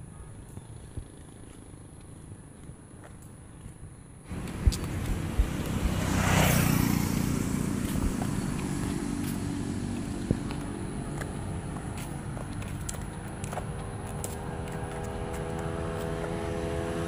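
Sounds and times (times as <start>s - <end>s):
motorcycle passing: 4.3s - 17.0s.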